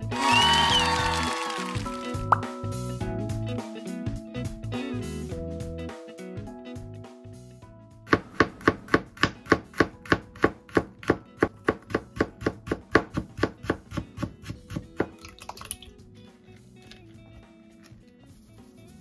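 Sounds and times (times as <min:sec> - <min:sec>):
quiet background music: 0:00.0 - 0:19.0
knife chopping on cutting board: 0:08.1 - 0:15.2.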